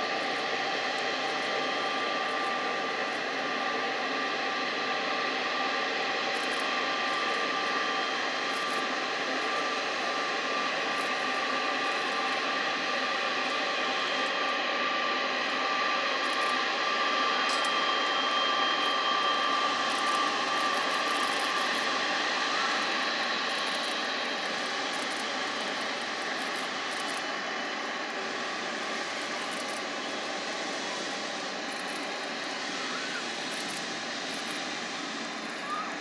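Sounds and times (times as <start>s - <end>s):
jet engines whining: 0.0s - 36.0s.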